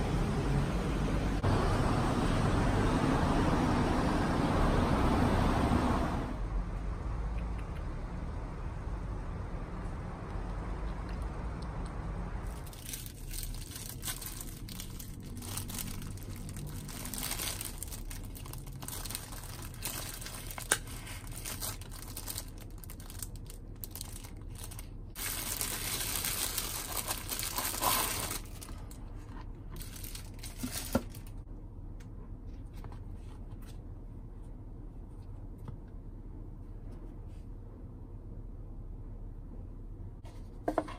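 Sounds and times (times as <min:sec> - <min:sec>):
plastic bag crinkling: 0:12.5 - 0:31.4.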